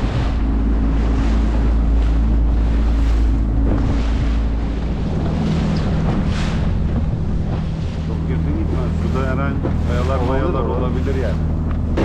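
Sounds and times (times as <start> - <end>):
outboard engine drone: 0.0 - 12.0
water splashing against hull: 0.0 - 12.0
wind buffeting microphone: 0.0 - 12.0.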